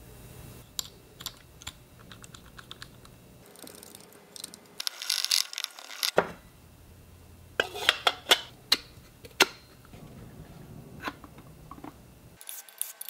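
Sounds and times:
small metal parts clicking: 0:00.8 - 0:06.2.

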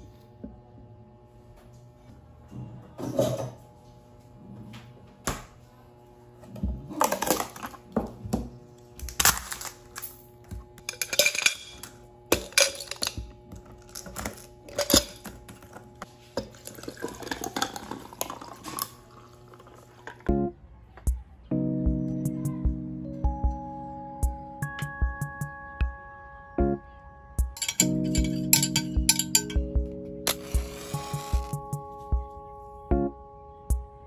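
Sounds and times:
ice cubes clinking against glass: 0:10.9 - 0:13.2, 0:16.4 - 0:19.0, 0:27.6 - 0:29.6.

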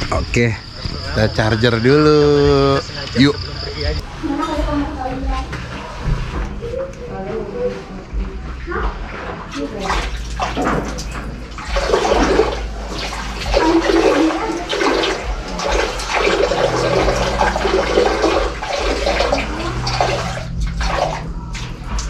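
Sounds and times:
urine splashing into toilet bowl: 0:09.6 - 0:22.0.

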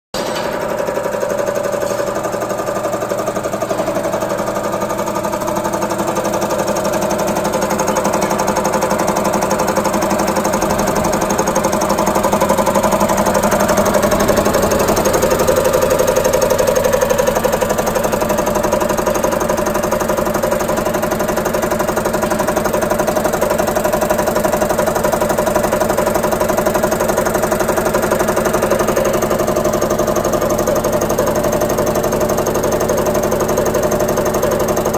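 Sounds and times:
steady motor hum: 0:00.4 - 0:23.8.

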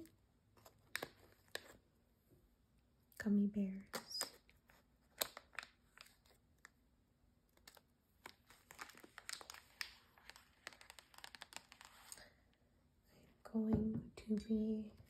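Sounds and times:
plastic bag crinkling: 0:07.6 - 0:12.3.

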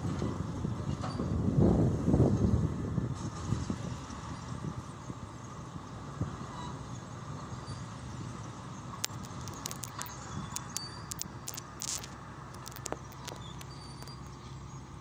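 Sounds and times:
short sharp clicks: 0:09.0 - 0:14.3.

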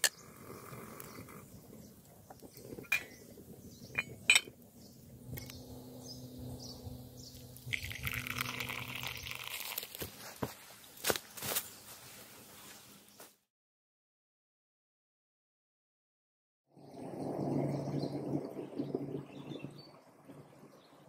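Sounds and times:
water pouring into mug: 0:07.6 - 0:10.1.

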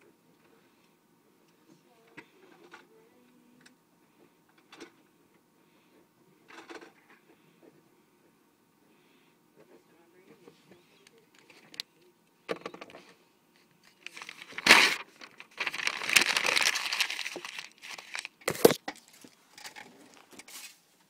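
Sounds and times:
hand rustling against paper: 0:13.6 - 0:19.4.

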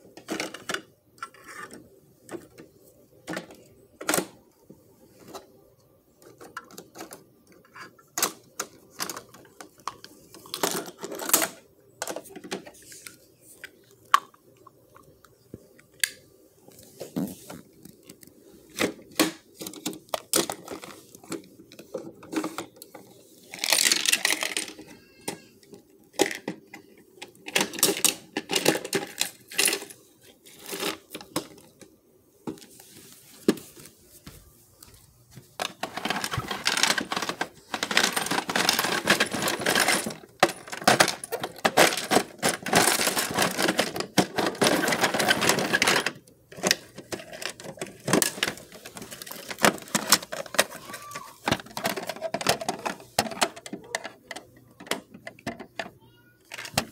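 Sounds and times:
plastic toys clicking and knocking: 0:00.0 - 0:04.4, 0:05.1 - 0:16.2, 0:17.2 - 0:32.7, 0:35.6 - 0:56.9
rapid plastic rattling: 0:35.6 - 0:55.8.

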